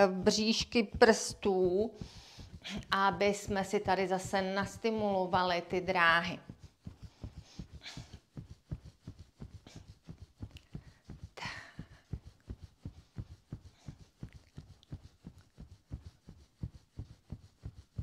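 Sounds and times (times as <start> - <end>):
fingertips patting on shirt: 0.0 - 18.0
short breath: 2.0 - 2.8.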